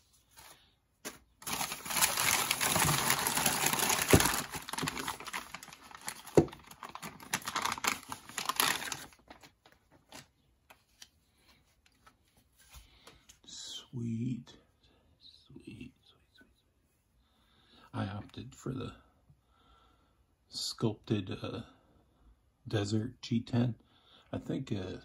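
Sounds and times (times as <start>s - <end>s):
paper and plastic bag crinkling: 0.3s - 10.3s.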